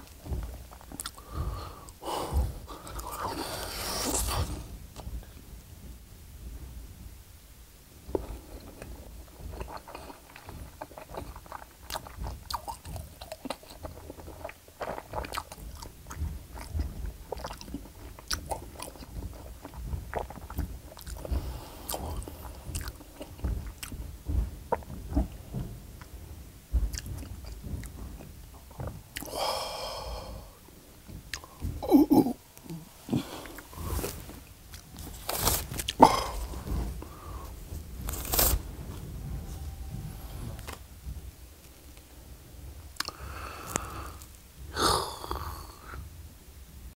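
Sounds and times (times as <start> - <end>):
wet chewing: 0.0 - 5.1, 8.1 - 26.1, 26.7 - 40.8, 43.0 - 44.4
mouth clicks and smacks: 0.0 - 5.2, 8.1 - 26.2, 26.8 - 38.6, 43.0 - 46.0
loud thumps: 30.2 - 42.9
pitched throat sound: 31.3 - 37.6, 43.0 - 46.0.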